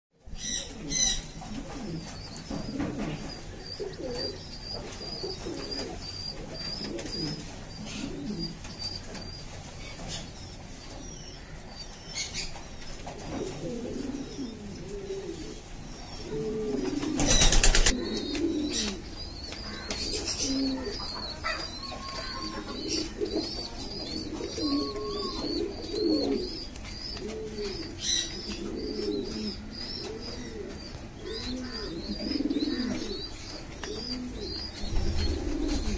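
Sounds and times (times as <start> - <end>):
pigeons cooing: 0.3 - 35.9
wings fluttering: 16.8 - 19.0.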